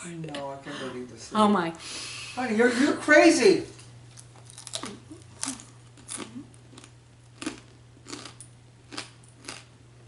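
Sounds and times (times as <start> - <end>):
person chewing crunchy bugs: 4.1 - 9.8.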